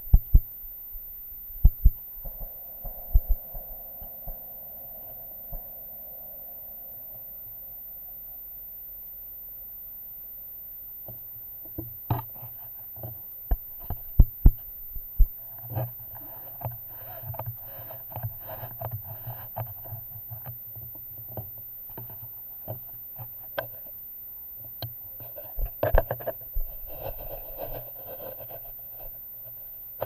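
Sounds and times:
rustling and scraping: 0:11.7 - 0:24.0, 0:24.6 - 0:30.0.

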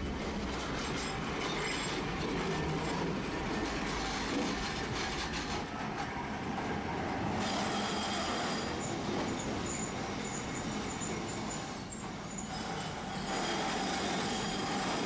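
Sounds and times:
tram rumbling: 0:00.0 - 0:15.0
tram wheels clicking on rails: 0:07.4 - 0:15.0.

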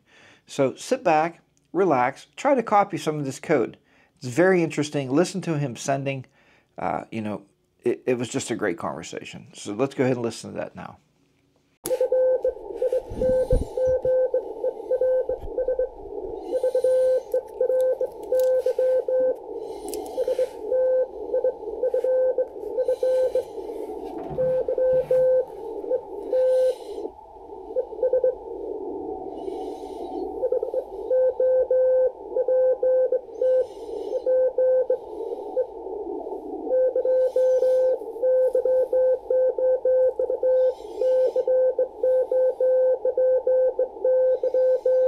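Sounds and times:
receiver hiss: 0:11.8 - 0:45.0
morse code beeps: 0:11.9 - 0:19.4, 0:20.1 - 0:23.5, 0:24.2 - 0:26.7, 0:30.4 - 0:35.0, 0:36.7 - 0:45.0.

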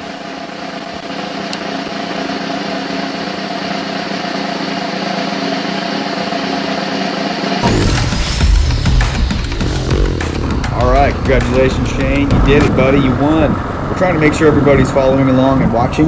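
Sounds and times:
motorcycle engine revving: 0:03.4 - 0:16.0
motorcycle engine idling: 0:07.8 - 0:16.0.

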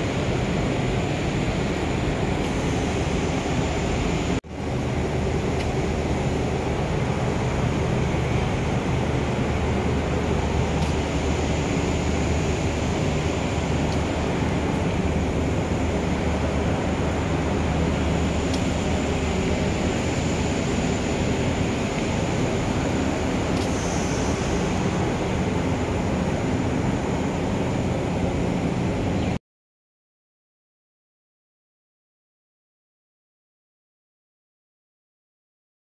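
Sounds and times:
hiss: 0:16.8 - 0:26.4.

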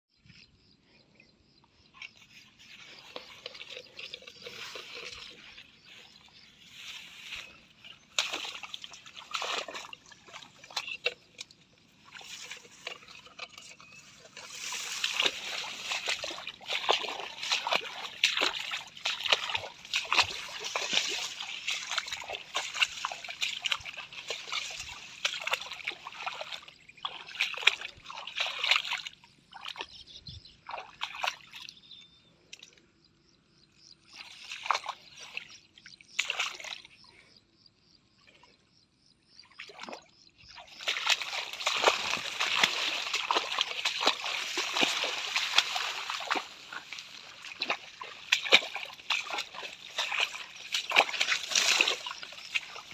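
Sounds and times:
splashing through shallow water: 0:02.0 - 0:32.7, 0:34.0 - 0:37.3, 0:39.4 - 0:52.9
rustling of wet plants: 0:02.1 - 0:29.9, 0:39.7 - 0:52.9.

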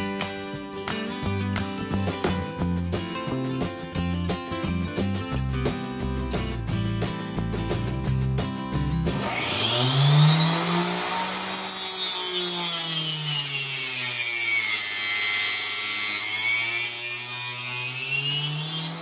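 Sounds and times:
table saw whining: 0:09.2 - 0:19.0.

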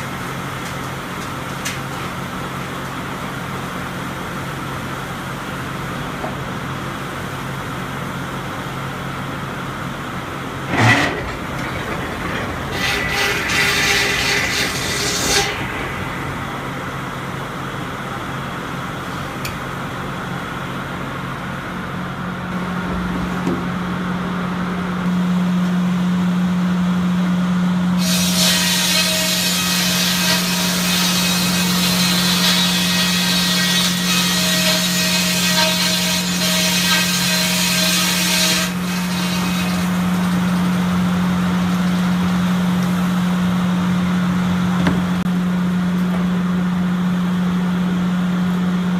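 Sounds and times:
circular saw humming: 0:09.4 - 0:20.1
saw blade cutting through log: 0:10.7 - 0:16.8.

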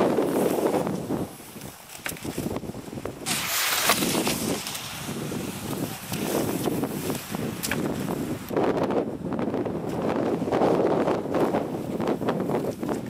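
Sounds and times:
wind rumbling on microphone: 0:00.0 - 0:13.0
skis hissing on snow: 0:00.1 - 0:01.8, 0:03.2 - 0:08.3
ski poles clicking: 0:00.5 - 0:02.7, 0:05.6 - 0:08.1.

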